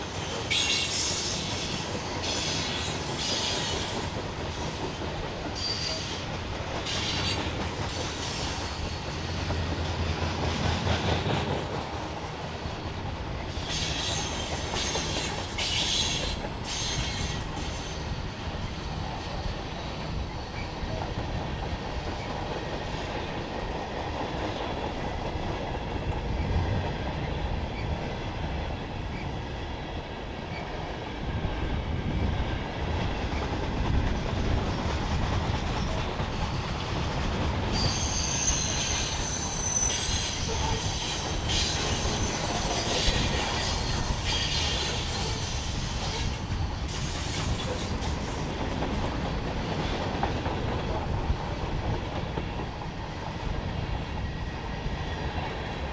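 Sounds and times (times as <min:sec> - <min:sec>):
wheels clicking on rail: 0:00.0 - 0:29.7, 0:32.1 - 0:55.9
freight train rumbling: 0:00.0 - 0:55.9
high wheel squeal: 0:05.6 - 0:06.2, 0:13.6 - 0:18.1, 0:37.7 - 0:47.8.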